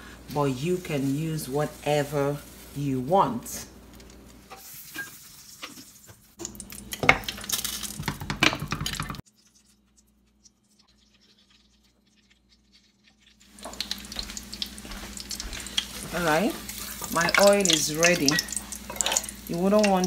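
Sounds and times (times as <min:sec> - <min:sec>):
soft kitchen noise: 0:00.0 - 0:20.0
spoon scraping metal wok: 0:16.6 - 0:19.4.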